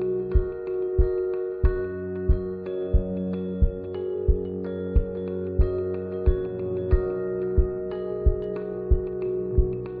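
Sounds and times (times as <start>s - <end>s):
low thumping beat: 0.0s - 10.0s.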